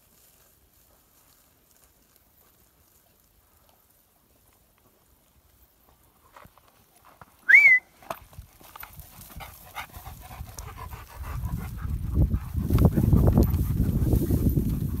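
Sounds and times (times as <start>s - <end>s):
rustling through dry grass: 0.0s - 7.4s, 8.2s - 15.0s
dog panting: 8.6s - 15.0s.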